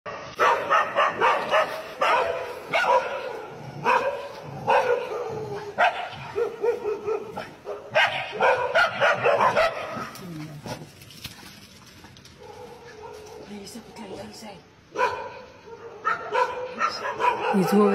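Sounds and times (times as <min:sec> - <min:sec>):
dog barking: 0:00.1 - 0:10.1, 0:12.4 - 0:13.5, 0:14.9 - 0:17.9.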